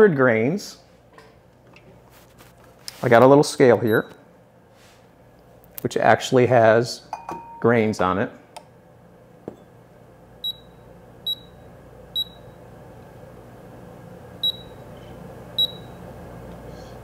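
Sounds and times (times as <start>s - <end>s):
digital scale beeping: 10.4s - 11.6s, 12.2s - 12.6s, 14.4s - 14.8s, 15.6s - 16.0s.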